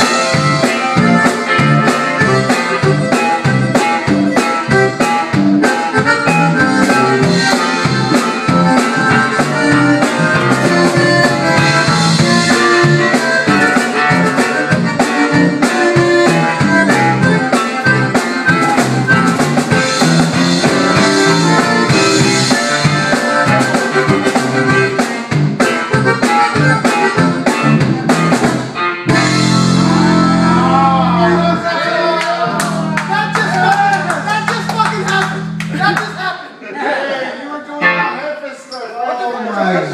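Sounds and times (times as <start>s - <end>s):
acoustic guitar: 0.0s - 35.9s
drum kit beat: 0.0s - 36.6s
electric bass: 0.0s - 36.6s
accordion: 0.0s - 37.1s
voices whooping: 30.0s - 34.3s.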